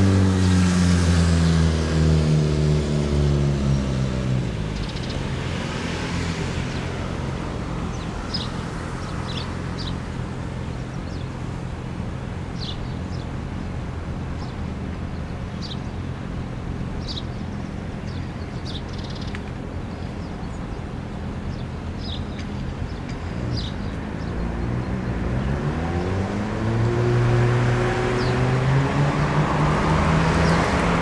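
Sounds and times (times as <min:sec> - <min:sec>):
low engine hum: 0:00.0 - 0:31.0
chickadees chirping: 0:07.8 - 0:11.4, 0:16.9 - 0:25.5.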